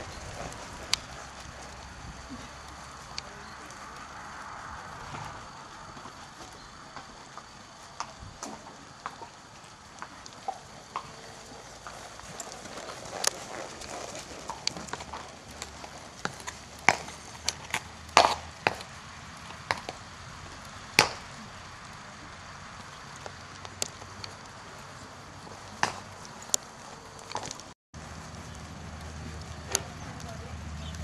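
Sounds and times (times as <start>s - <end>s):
horse hoofbeats on sand: 0.0s - 21.6s.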